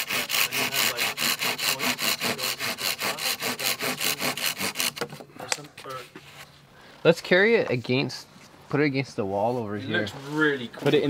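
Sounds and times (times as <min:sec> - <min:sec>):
hand saw cutting wood: 0:00.0 - 0:05.3.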